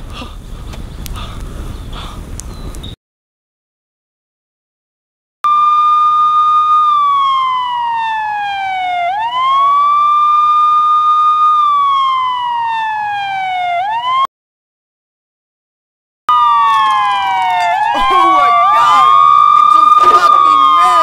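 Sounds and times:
police siren wailing: 0:05.5 - 0:14.3, 0:16.3 - 0:21.0.

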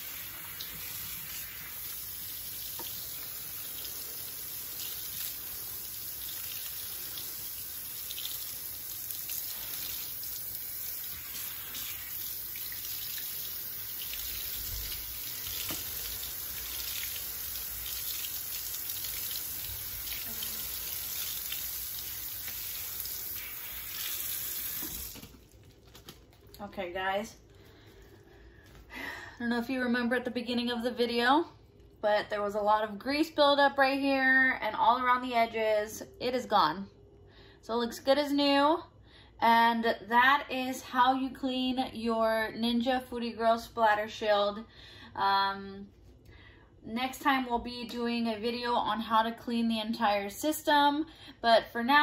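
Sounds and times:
faucet water splashing on metal mesh: 0:00.0 - 0:25.2.

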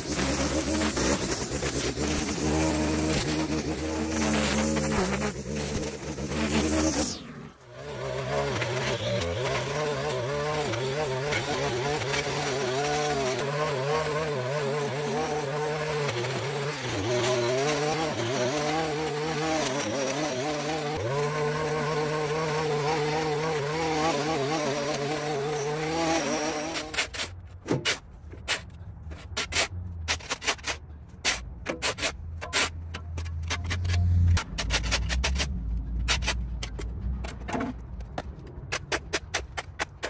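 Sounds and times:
small engine revs wavering: 0:00.0 - 0:27.3.

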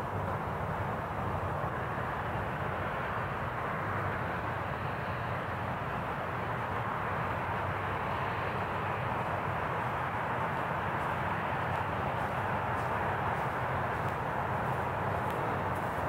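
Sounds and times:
steady outdoor rumble: 0:00.0 - 0:16.0.

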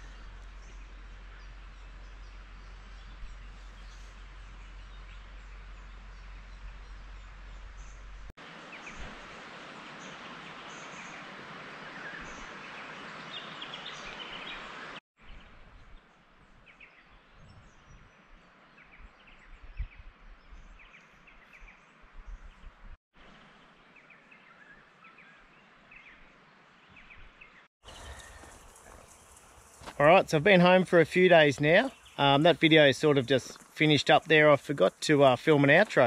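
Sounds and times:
bird chirps: 0:26.9 - 0:34.6
steady hiss: 0:27.9 - 0:36.0.

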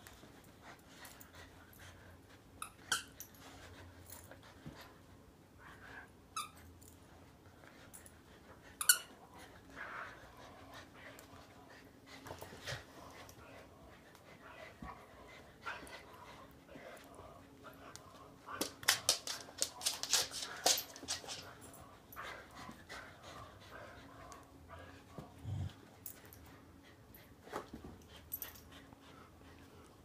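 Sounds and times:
dogs play growling: 0:03.2 - 0:30.0
rapid clicking and scuffling: 0:18.5 - 0:21.8.

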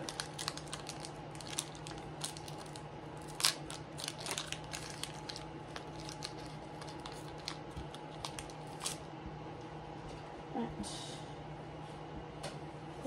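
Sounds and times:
foil wrapper tearing and crinkling: 0:00.0 - 0:09.0.

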